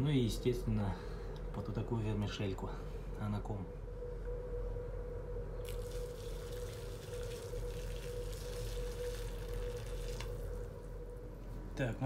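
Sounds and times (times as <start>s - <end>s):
low hum: 0.0s - 12.0s
water pouring into glass bowl: 5.6s - 10.9s.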